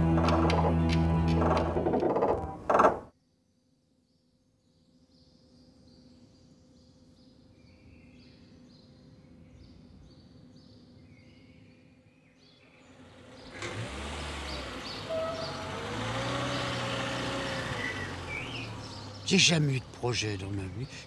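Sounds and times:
traffic rumble: 0:00.0 - 0:02.8, 0:12.7 - 0:21.0
birds chirping: 0:04.7 - 0:21.0
car passing: 0:12.8 - 0:21.0.

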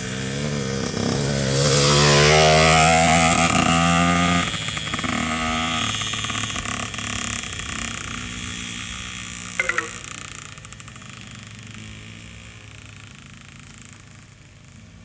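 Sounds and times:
motocross bike pulling away: 0:00.0 - 0:15.0
small motorbike engine running: 0:00.0 - 0:15.0
brief high-pitched pulses: 0:09.6 - 0:10.3.

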